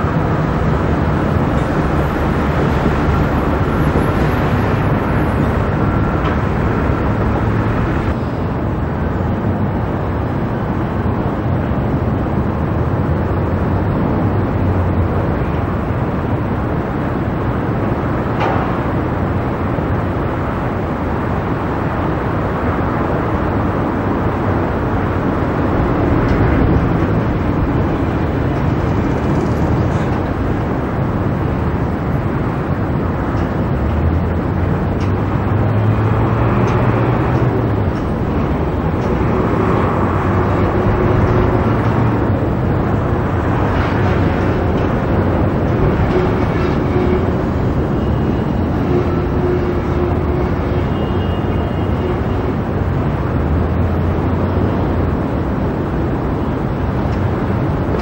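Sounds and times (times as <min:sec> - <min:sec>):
city traffic and rail roar: 0:00.0 - 0:58.0.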